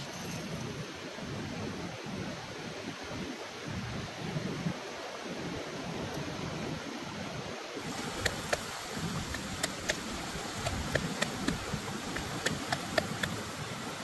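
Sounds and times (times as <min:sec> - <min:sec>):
running river water: 0:00.0 - 0:14.0
pestle pounding in wooden mortar: 0:10.6 - 0:13.4.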